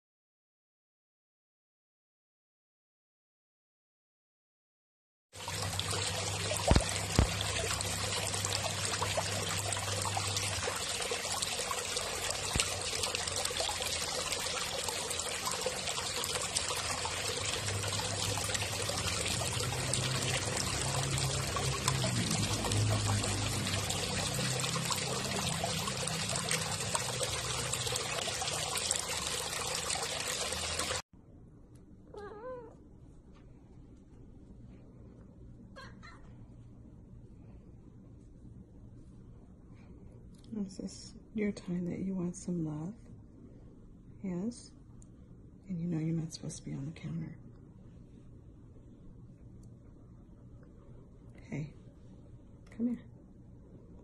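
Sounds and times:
fish splashing in water: 5.4s - 31.0s
cat meowing: 32.1s - 32.8s.

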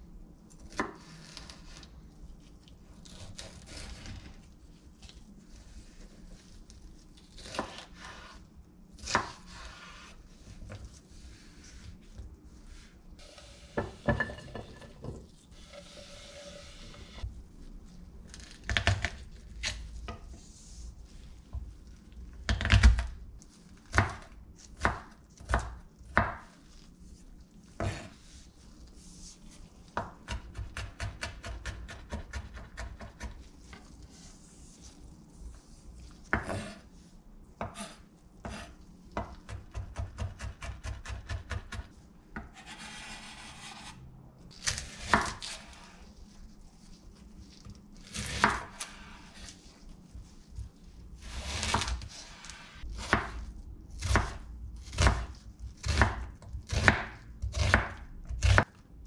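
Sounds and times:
knife chopping on wooden board: 54.0s - 58.6s.

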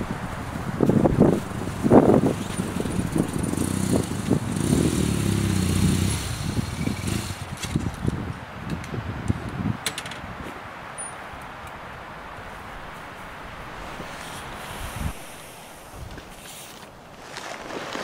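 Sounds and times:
motorcycle engine running: 0.9s - 8.0s.

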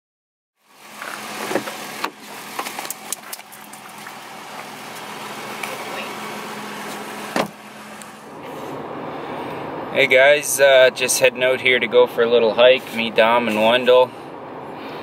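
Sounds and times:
truck engine idling: 0.6s - 15.0s
loud thump: 7.3s - 7.6s.

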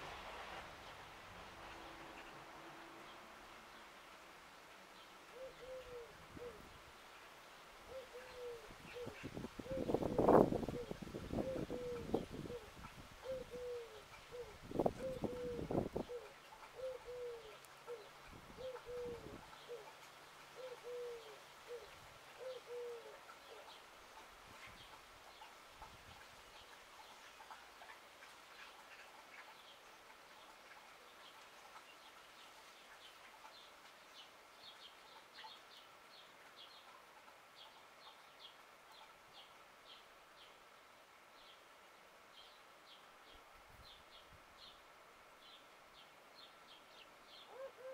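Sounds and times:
quiet outdoor hiss: 0.0s - 47.9s
dove cooing: 5.3s - 6.7s, 7.9s - 20.0s, 20.6s - 23.8s, 47.5s - 47.9s.

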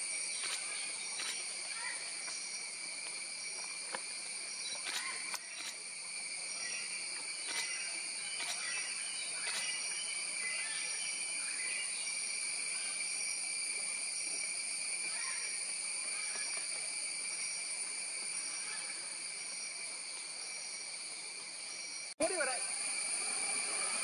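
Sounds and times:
forest insects shrill chorus: 0.0s - 24.0s
pulsing high insect note: 21.8s - 24.0s.

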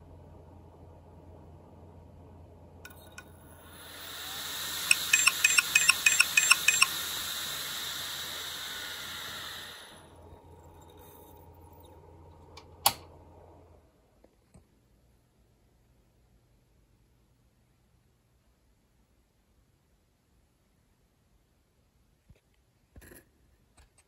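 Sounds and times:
hard drive whirring: 2.9s - 13.5s
hard drive head clicking: 4.2s - 7.0s.

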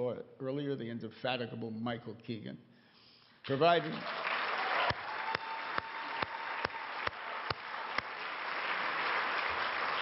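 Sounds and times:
audience applauding: 3.5s - 10.0s
hand claps close to microphone: 4.4s - 10.0s.

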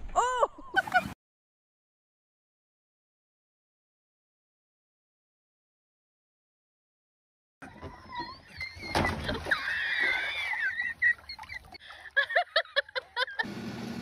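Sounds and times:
person laughing: 0.2s - 1.2s, 10.4s - 13.5s.

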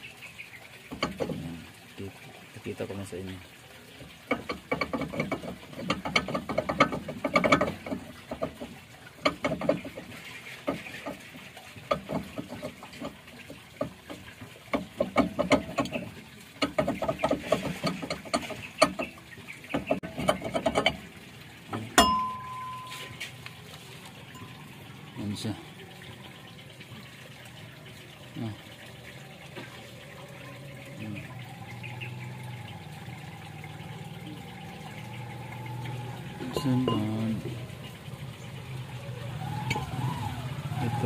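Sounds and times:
metal clicking and rattling: 4.3s - 21.1s
sharp metallic clang: 22.0s - 23.4s.

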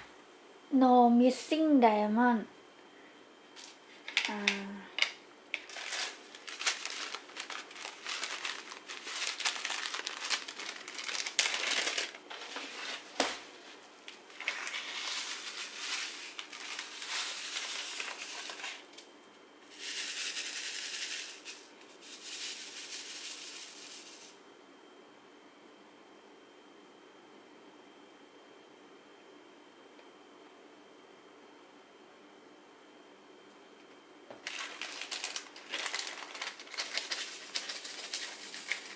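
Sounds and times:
beads rattling in tray: 5.6s - 12.5s, 14.4s - 18.8s, 19.7s - 24.4s, 34.4s - 38.9s
plastic bag crinkling: 5.6s - 13.3s, 14.3s - 18.9s, 34.3s - 38.9s
beads pouring into plastic tray: 5.7s - 12.7s, 14.4s - 18.8s, 19.7s - 24.4s, 34.4s - 38.9s.

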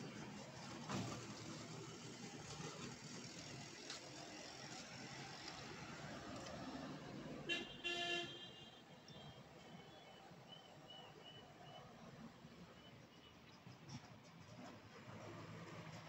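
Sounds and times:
road traffic: 0.0s - 16.0s
vehicle horn honks: 7.5s - 8.8s.

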